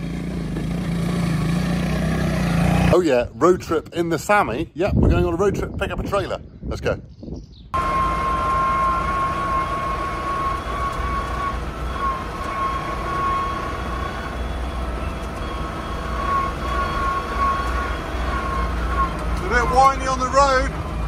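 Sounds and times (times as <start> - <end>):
tractor diesel engine running: 0.0 - 3.6, 7.8 - 21.0
thin steady whine: 7.8 - 20.7.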